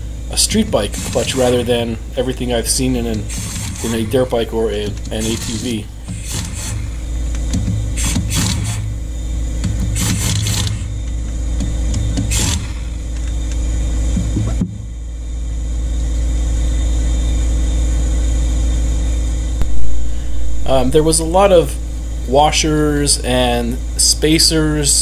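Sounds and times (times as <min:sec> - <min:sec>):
low machine hum: 0:00.0 - 0:25.0
impact wrench bursts: 0:00.3 - 0:02.0, 0:02.7 - 0:11.0, 0:12.1 - 0:13.4.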